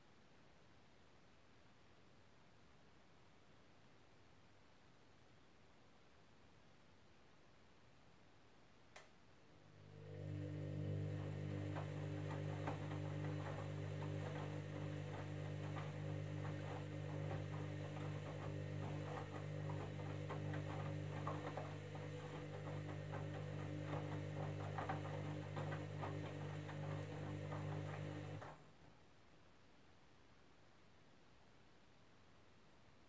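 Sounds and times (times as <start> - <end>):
washing machine motor humming: 9.5 - 28.6.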